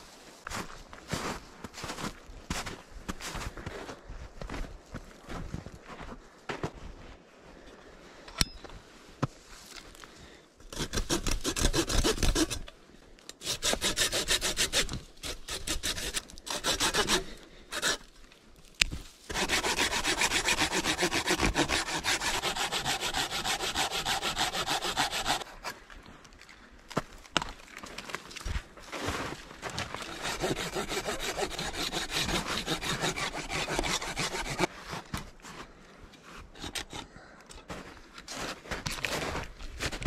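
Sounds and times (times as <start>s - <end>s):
pruning saw rasping through branches: 10.7s - 12.7s, 13.3s - 18.1s, 19.3s - 25.8s, 30.0s - 34.7s, 36.5s - 37.1s.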